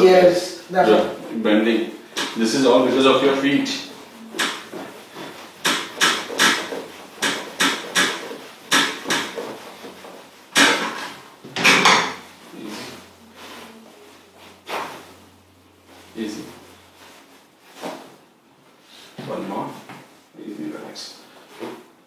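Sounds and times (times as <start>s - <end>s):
sharp knocks and cracks: 2.1s - 2.4s, 4.4s - 12.2s.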